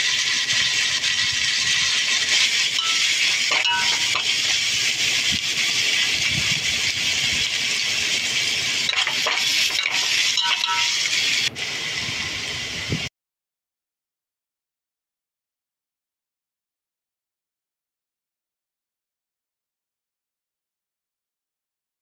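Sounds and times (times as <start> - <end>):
noodles sizzling in a wok: 0.0 - 13.0
metal spatula scraping a pan: 0.2 - 11.4.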